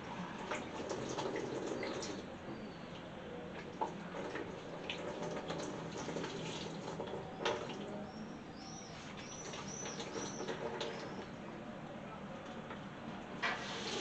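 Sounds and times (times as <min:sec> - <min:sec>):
liquid trickling and splashing into basin: 0:00.0 - 0:02.2, 0:03.5 - 0:07.9, 0:09.1 - 0:11.3
bird chirping: 0:07.2 - 0:11.4.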